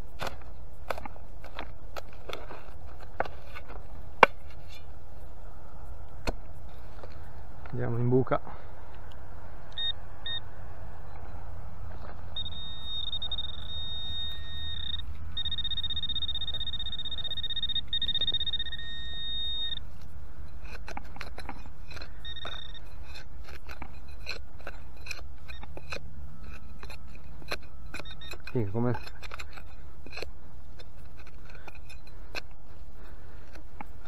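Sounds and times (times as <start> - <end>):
digging and scraping in soil: 0.0 - 34.0
metal detector beeping: 9.7 - 11.4, 12.3 - 20.0, 21.9 - 23.2, 25.0 - 30.3.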